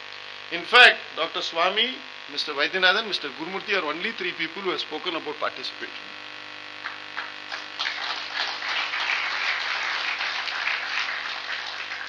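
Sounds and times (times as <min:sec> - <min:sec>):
audience applauding: 0:06.8 - 0:12.0.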